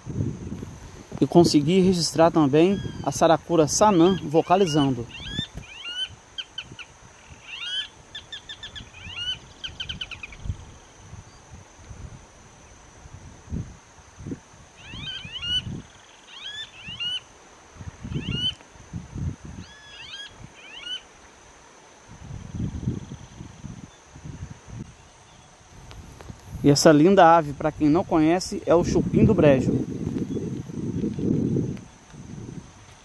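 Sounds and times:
rail bird calling: 2.4s - 10.6s, 14.8s - 17.3s, 18.1s - 18.6s, 19.6s - 21.1s.

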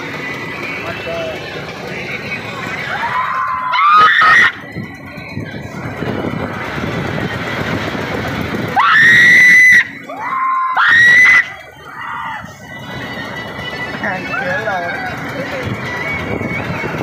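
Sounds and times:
steady rushing noise: 0.0s - 17.0s
riders screaming: 2.7s - 4.8s, 8.6s - 15.3s.

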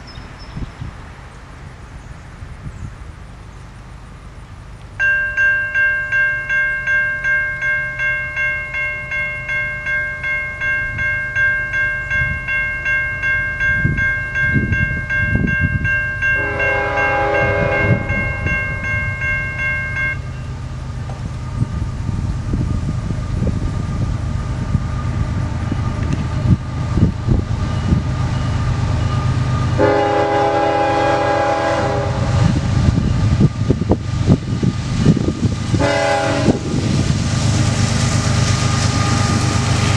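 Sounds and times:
train rumble: 0.0s - 39.9s
crossing bell ringing: 4.9s - 20.7s, 27.6s - 33.4s
locomotive horn blasts: 16.2s - 18.6s, 29.8s - 32.7s, 35.8s - 36.8s.

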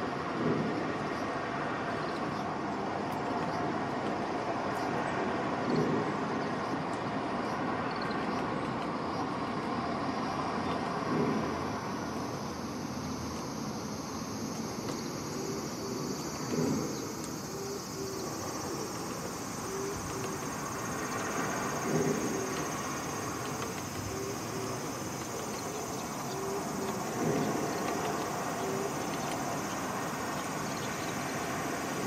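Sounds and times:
insects buzzing: 0.0s - 32.0s.

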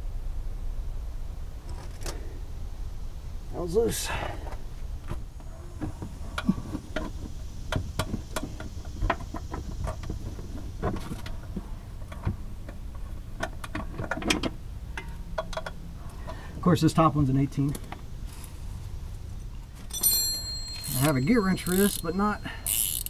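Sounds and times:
wrench clicking on metal: 20.8s - 23.0s.

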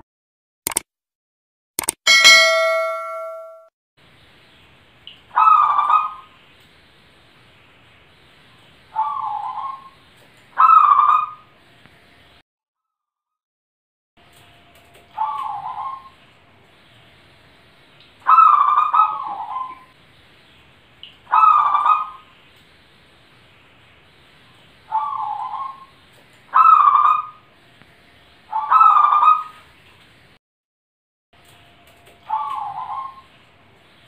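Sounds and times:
dove cooing: 9.0s - 9.9s, 15.2s - 16.2s, 32.3s - 33.3s.

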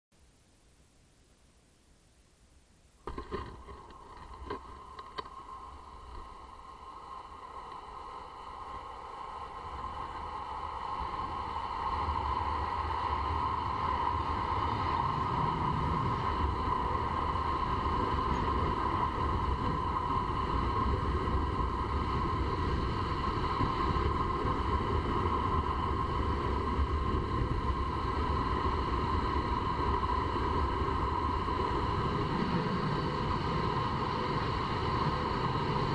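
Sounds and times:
skateboard knocking on road: 3.0s - 5.4s
wheels rolling on asphalt: 3.0s - 35.9s
wind on microphone: 3.1s - 35.9s.

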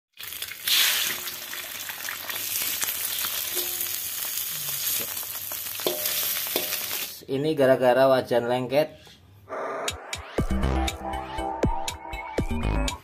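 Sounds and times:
egg sizzling in hot oil: 0.1s - 7.2s
metal spatula scraping: 3.4s - 4.1s.

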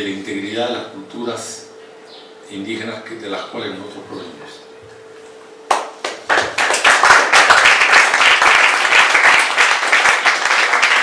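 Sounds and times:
audience applause: 6.0s - 11.0s.

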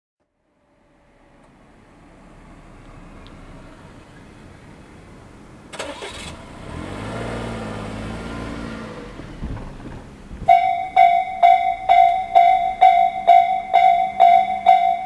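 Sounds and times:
small car driving past: 0.6s - 4.9s, 5.7s - 15.0s
level crossing warning bell: 10.5s - 15.0s.

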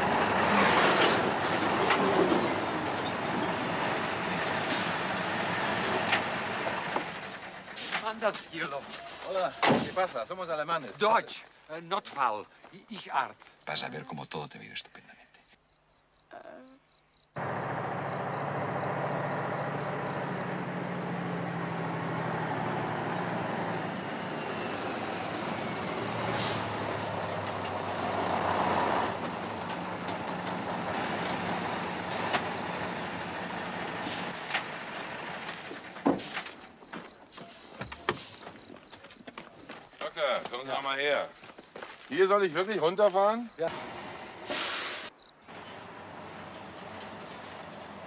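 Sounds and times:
semi-truck driving by: 0.0s - 9.6s, 17.4s - 36.7s, 43.6s - 48.0s
crickets chirping: 1.4s - 43.7s, 44.9s - 45.8s.

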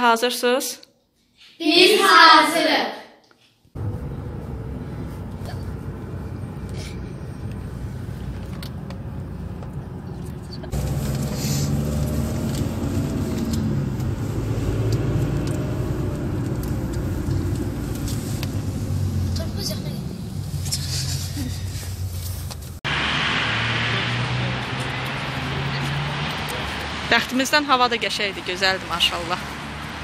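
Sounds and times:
car engine and tyre rumble: 3.8s - 30.0s.

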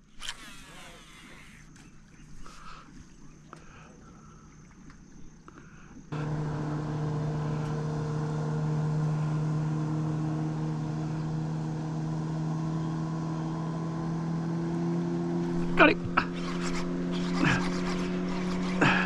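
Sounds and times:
boat motor humming: 0.0s - 19.0s.

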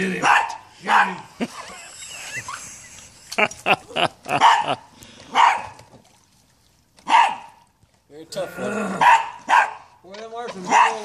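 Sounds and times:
small dog barking: 0.2s - 1.2s, 4.4s - 5.8s, 7.0s - 7.6s, 9.0s - 9.9s, 10.6s - 11.0s.

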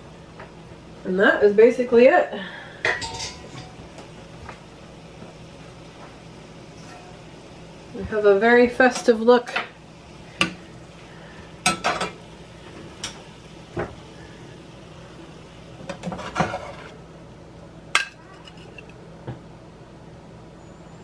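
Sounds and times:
metal spatula scraping skillet: 15.9s - 17.0s, 18.0s - 18.9s.

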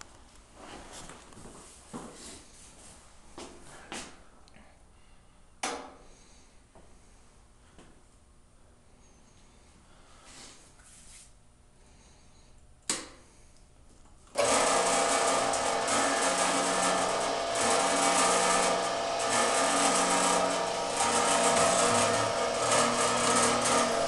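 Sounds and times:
feed mechanism clatter: 14.4s - 24.0s
saw sharpener machine running: 14.4s - 24.0s.

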